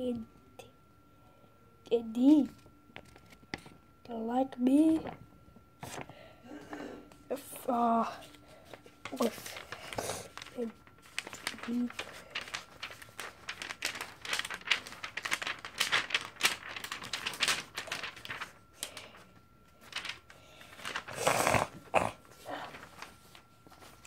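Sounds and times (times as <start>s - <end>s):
notebook pages rustling: 2.4s - 3.7s, 5.8s - 6.1s, 7.6s - 24.0s.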